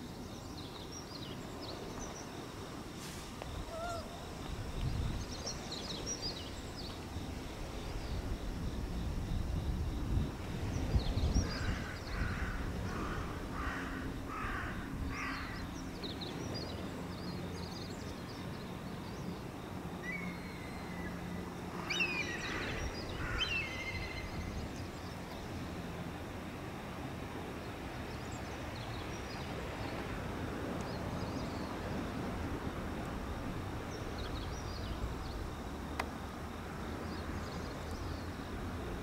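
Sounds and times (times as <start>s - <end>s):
low rumble of harbour ambience: 0.0s - 39.0s
crow cawing: 11.6s - 15.6s.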